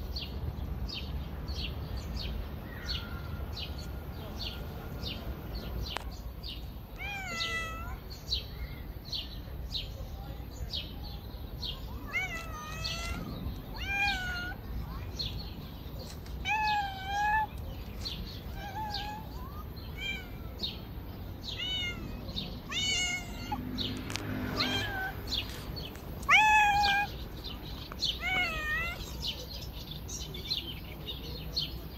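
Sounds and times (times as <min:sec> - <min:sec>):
cats meowing: 0:07.0 - 0:08.1, 0:11.9 - 0:14.6, 0:16.1 - 0:29.5.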